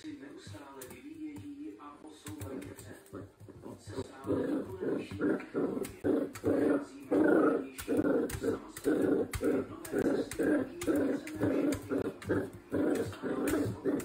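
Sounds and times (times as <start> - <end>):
puppy play-growling: 2.3 - 14.0
sharp taps: 7.7 - 14.0.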